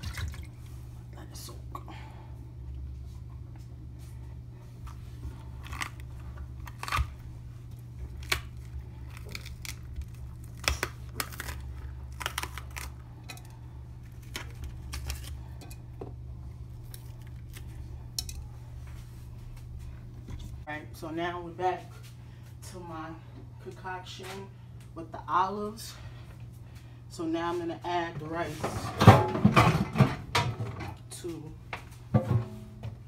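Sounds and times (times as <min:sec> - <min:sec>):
low hum: 0:00.0 - 0:23.8
bell pepper snapping and tearing: 0:05.6 - 0:07.2, 0:08.1 - 0:13.0, 0:14.1 - 0:15.4.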